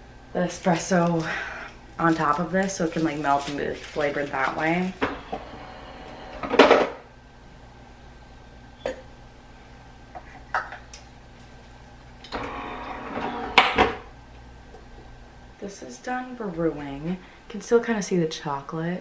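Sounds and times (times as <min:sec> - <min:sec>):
coffee machine brewing: 0:04.0 - 0:06.9, 0:12.2 - 0:14.0.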